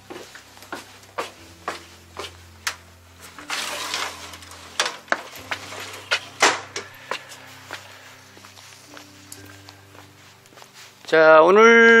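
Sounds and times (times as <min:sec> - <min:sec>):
footsteps on hard floor: 0:00.0 - 0:11.2
scraping rustle: 0:03.2 - 0:09.3.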